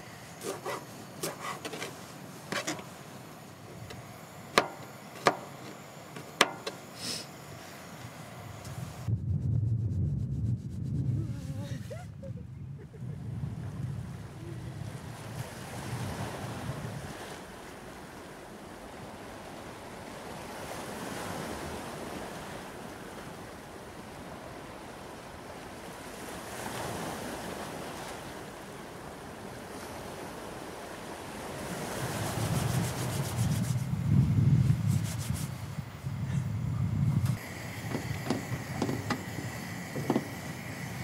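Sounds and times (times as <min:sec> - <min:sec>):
sea waves on rocky shore: 0:00.0 - 0:08.5, 0:13.7 - 0:33.7, 0:37.4 - 0:41.0
wind rumble on microphone: 0:08.2 - 0:41.0.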